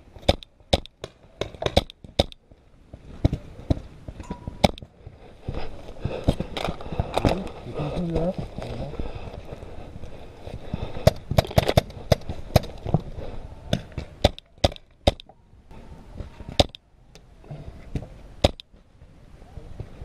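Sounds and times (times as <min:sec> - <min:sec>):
paintball markers firing: 0:00.2 - 0:02.4, 0:11.0 - 0:12.8, 0:13.8 - 0:15.3.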